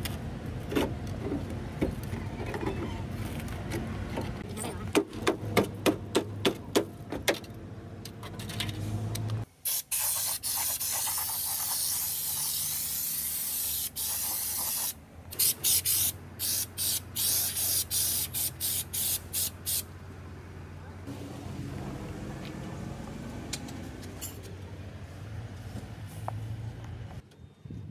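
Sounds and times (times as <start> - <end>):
spray gun hissing: 9.6 - 19.8.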